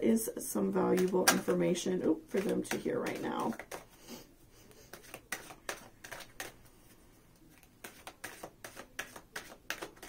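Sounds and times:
deck of cards shuffling: 0.9s - 1.5s, 2.3s - 4.1s, 4.8s - 10.0s.

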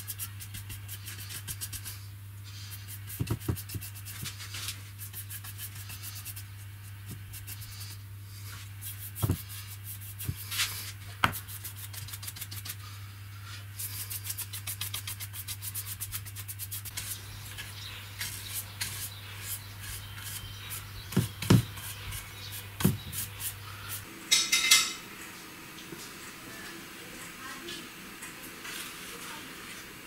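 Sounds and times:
brush scrubbing wood: 0.0s - 24.0s.

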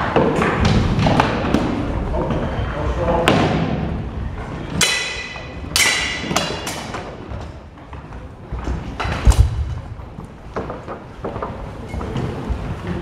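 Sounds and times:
heavy thud: 9.1s - 10.2s.

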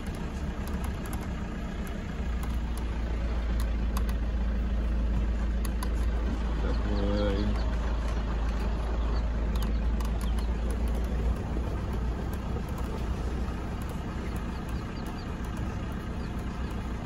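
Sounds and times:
vehicle engine low rumble: 0.0s - 17.0s.

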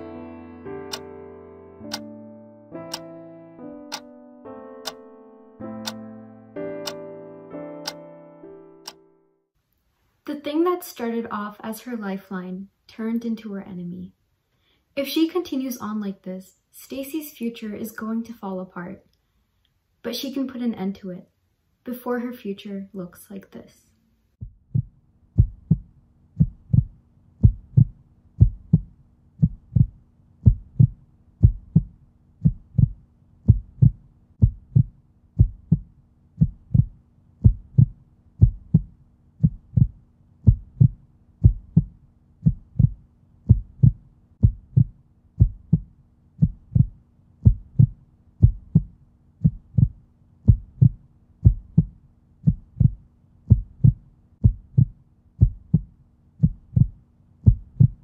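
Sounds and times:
heartbeat thumps: 24.4s - 58.0s.

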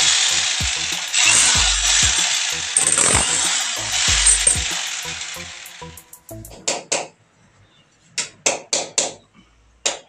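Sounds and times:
rotary hammer drill boring: 0.0s - 5.8s
background music with a beat: 0.0s - 6.6s.

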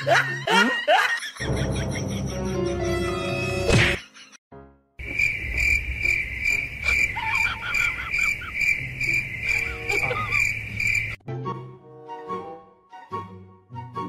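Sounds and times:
crickets chirping: 5.0s - 11.2s.

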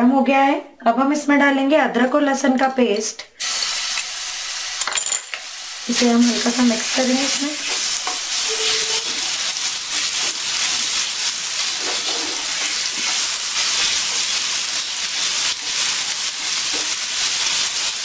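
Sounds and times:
paste sizzling in hot oil: 3.4s - 18.0s
wooden spatula stirring: 7.2s - 14.4s.

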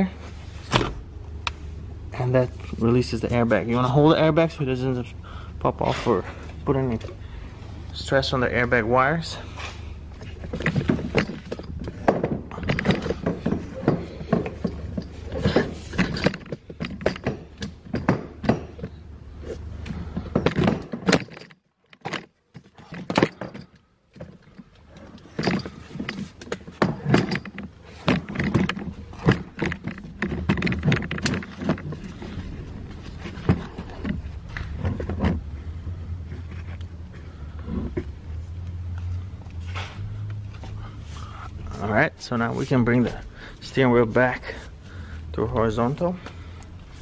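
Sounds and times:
low steady hum: 0.0s - 47.0s
clicks and rustles of handling: 9.6s - 35.6s.

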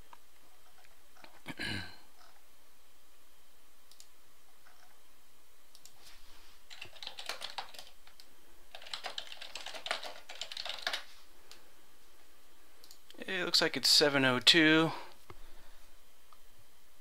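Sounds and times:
computer keyboard typing: 6.7s - 11.1s.

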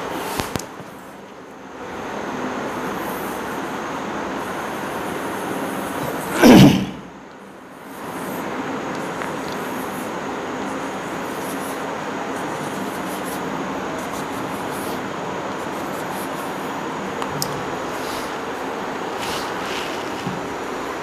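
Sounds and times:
short loud sound: 6.3s - 7.1s
chalk scraping on blackboard: 19.1s - 20.4s.

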